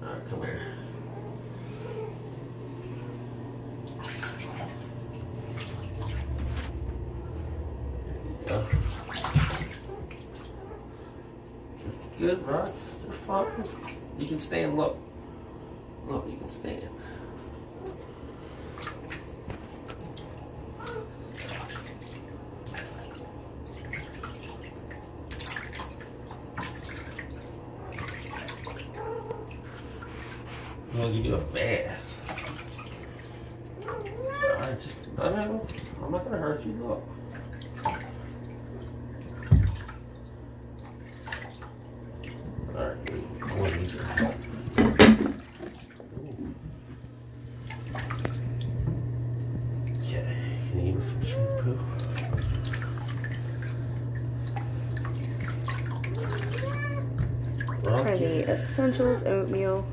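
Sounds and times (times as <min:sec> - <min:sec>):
steady low hum: 0:00.0 - 0:59.9
water dripping and splashing: 0:03.8 - 0:10.7, 0:18.7 - 0:30.1, 0:32.1 - 0:46.4, 0:47.5 - 0:50.2, 0:51.9 - 0:59.9.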